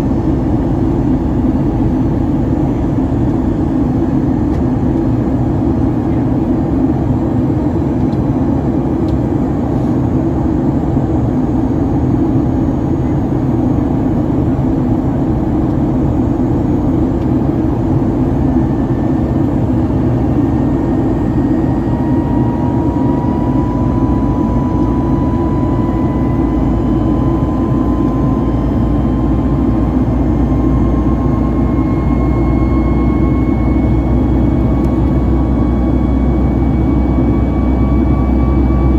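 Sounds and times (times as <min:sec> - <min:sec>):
jet engine and airflow roar: 0:00.0 - 0:38.9
faint rising whine: 0:10.2 - 0:38.9.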